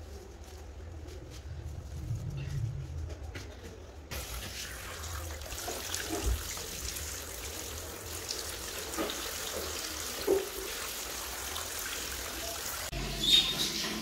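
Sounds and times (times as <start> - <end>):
shower water splashing into bathtub: 4.1 - 12.9.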